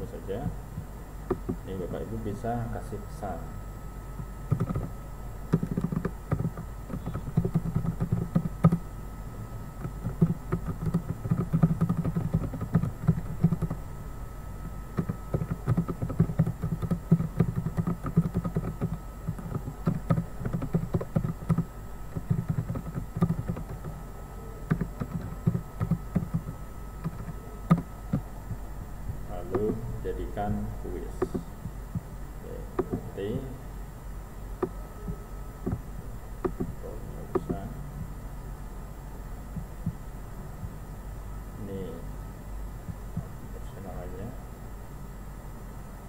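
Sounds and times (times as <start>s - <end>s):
faint electrical hum: 0.0s - 46.0s
typing on keyboard: 4.5s - 8.9s, 9.8s - 13.8s, 14.9s - 24.0s, 24.6s - 28.3s, 31.1s - 31.5s, 32.8s - 33.1s, 36.4s - 37.6s.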